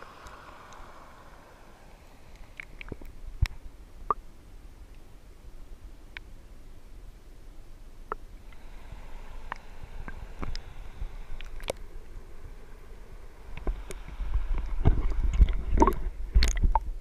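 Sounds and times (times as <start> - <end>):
water gurgling: 0.0 - 4.4, 8.0 - 17.0
low rumble: 6.7 - 17.0
muffled underwater clicks and knocks: 13.5 - 16.9.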